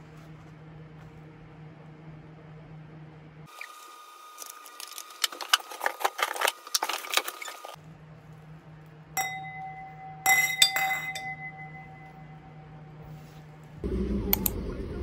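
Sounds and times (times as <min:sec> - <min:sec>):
glasses clinking: 0:09.2 - 0:12.8
glass ringing tone: 0:09.2 - 0:13.0.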